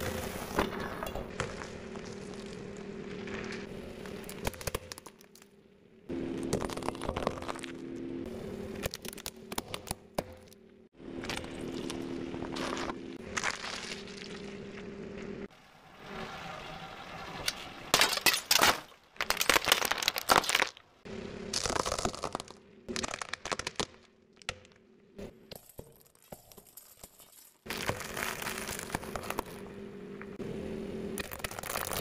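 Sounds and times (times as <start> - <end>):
tyre crushing glass: 17.9 - 20.8, 25.5 - 29.6.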